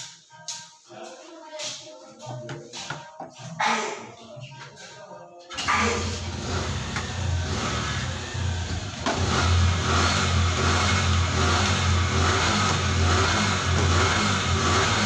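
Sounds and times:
motor humming: 5.6s - 15.0s.

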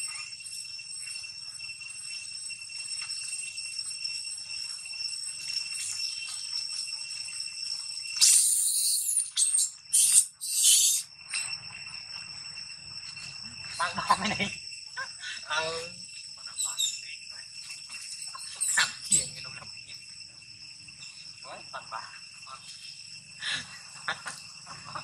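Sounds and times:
insects droning: 0.0s - 25.0s
short bursts of hiss-like noise: 9.9s - 11.0s.

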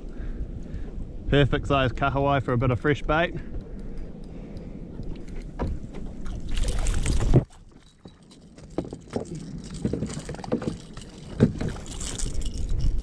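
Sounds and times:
knocks against a hull: 5.6s - 6.2s.

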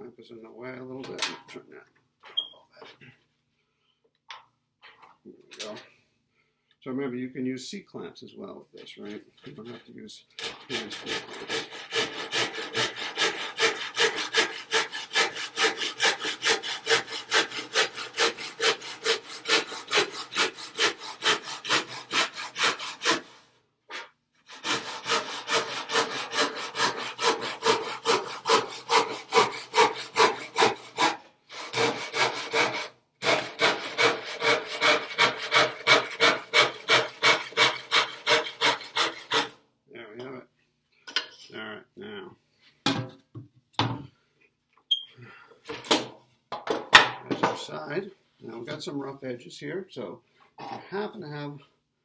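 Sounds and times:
handsaw cutting wood: 10.4s - 39.6s.

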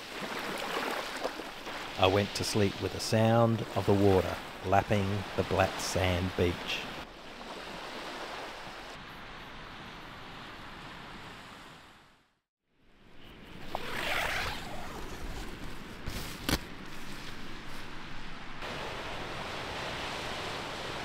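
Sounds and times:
small waves lapping on beach: 0.0s - 12.2s, 16.1s - 21.0s
outdoor ambience: 7.1s - 21.0s.

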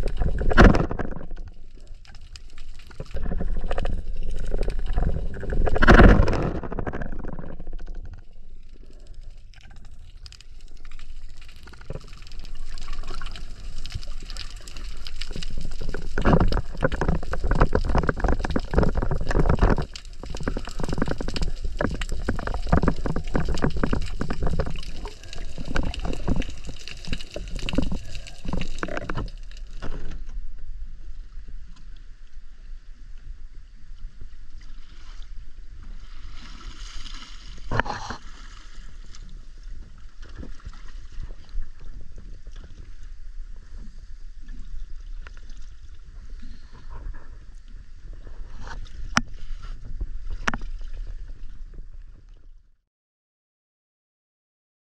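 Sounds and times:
rushing bubbling water: 0.0s - 29.9s
underwater crackling and knocking: 0.0s - 30.7s, 48.1s - 52.5s
water and wind at surface: 0.0s - 52.7s.

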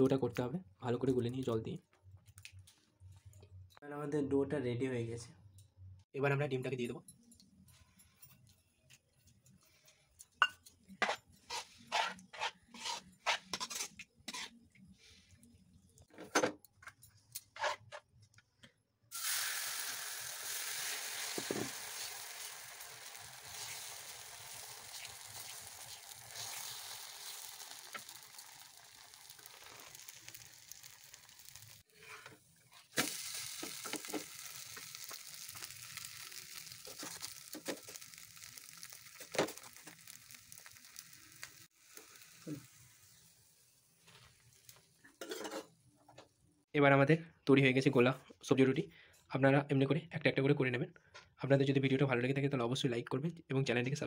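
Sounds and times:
batter sizzling on hot griddle: 19.1s - 45.4s.

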